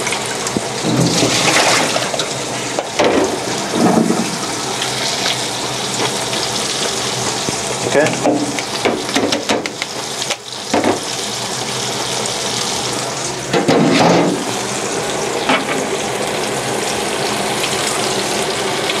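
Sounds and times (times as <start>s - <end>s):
fish deep-frying in hot oil: 0.0s - 19.0s.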